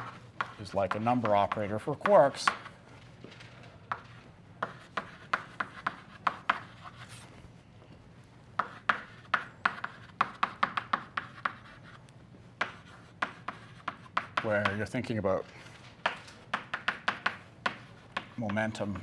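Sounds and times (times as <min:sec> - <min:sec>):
chalk tapping on blackboard: 0:00.0 - 0:02.7, 0:03.9 - 0:07.1, 0:08.6 - 0:12.0, 0:12.6 - 0:14.9, 0:16.0 - 0:18.8.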